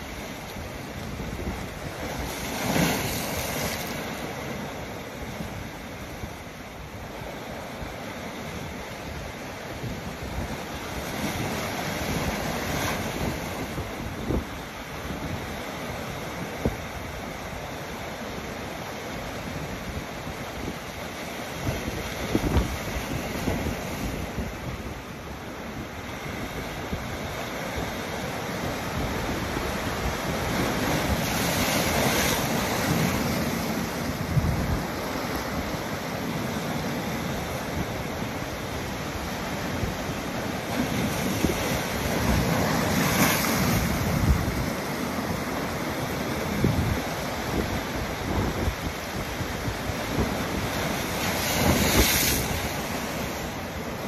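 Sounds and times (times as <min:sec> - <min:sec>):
waves breaking on rocks: 0:00.0 - 0:54.0
wind buffeting microphone: 0:21.6 - 0:25.0.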